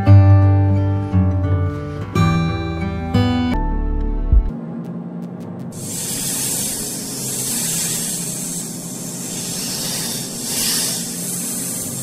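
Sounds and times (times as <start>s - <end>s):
steady hissing noise: 5.7s - 12.0s.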